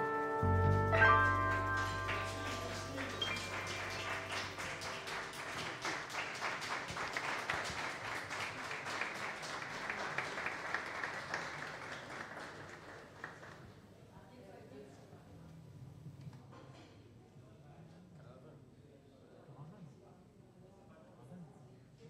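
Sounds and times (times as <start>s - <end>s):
jazz band last notes: 0.0s - 5.9s
audience applauding: 0.8s - 13.8s.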